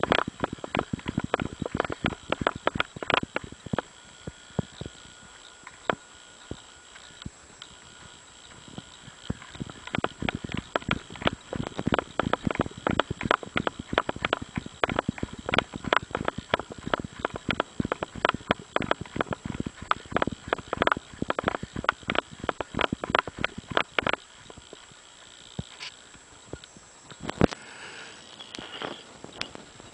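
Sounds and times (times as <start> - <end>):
running footsteps on gravel: 0.0 - 3.4, 9.3 - 24.0.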